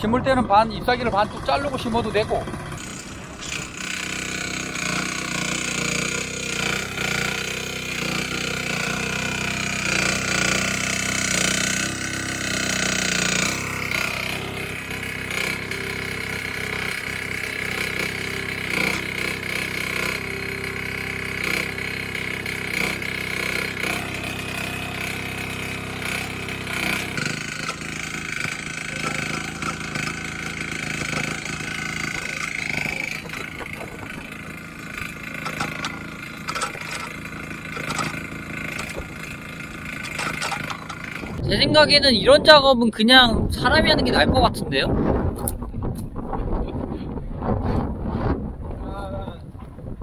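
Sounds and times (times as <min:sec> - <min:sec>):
mini excavator engine running: 0:00.0 - 0:42.5.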